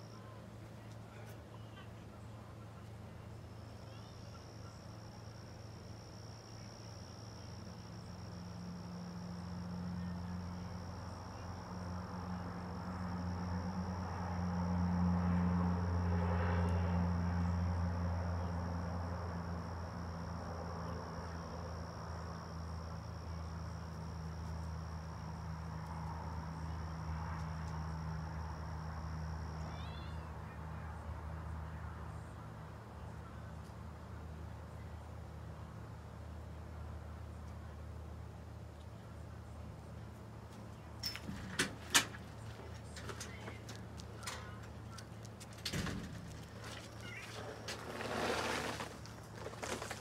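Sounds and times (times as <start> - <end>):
vehicle engine hum: 0.0 - 50.0.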